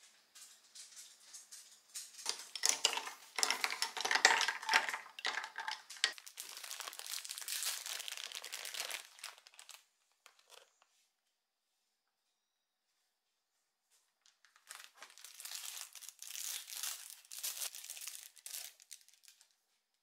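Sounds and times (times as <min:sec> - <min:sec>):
plastic bag crinkling: 0:02.2 - 0:10.9, 0:14.2 - 0:19.6.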